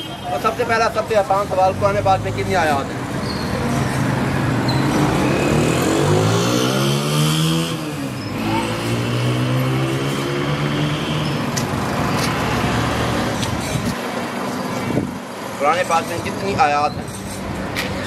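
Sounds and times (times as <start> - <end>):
vehicle engine accelerating: 4.1 - 13.7.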